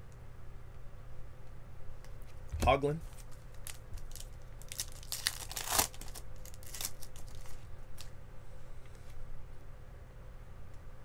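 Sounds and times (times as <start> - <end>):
foil wrapper crinkling and tearing: 3.1 - 8.1.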